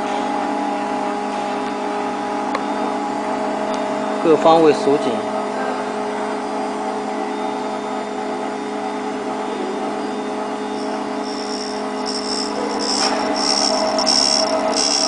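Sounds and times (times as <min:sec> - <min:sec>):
high thin ringing whine: 0:10.0 - 0:15.0
grinder motor hum: 0:10.8 - 0:15.0.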